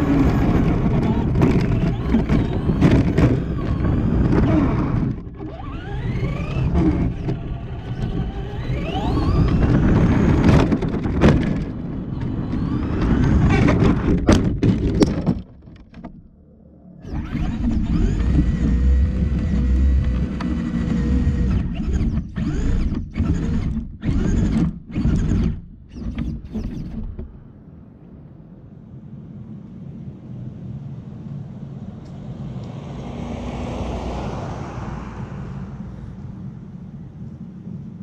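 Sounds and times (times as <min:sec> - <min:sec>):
rc car motor bursts: 0:17.1 - 0:26.9.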